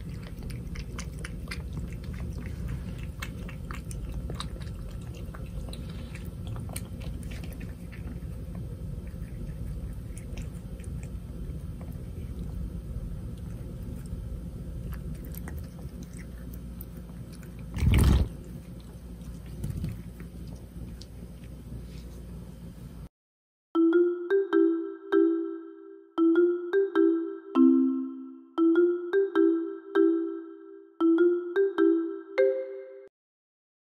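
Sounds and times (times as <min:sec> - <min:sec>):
cat licking and chewing: 0:00.0 - 0:22.4.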